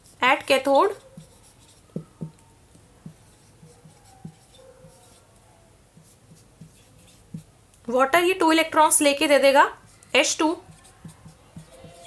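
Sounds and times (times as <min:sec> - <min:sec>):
pen writing strokes: 0:00.9 - 0:07.5, 0:09.9 - 0:12.0
soft taps of writing tip: 0:10.6 - 0:12.0.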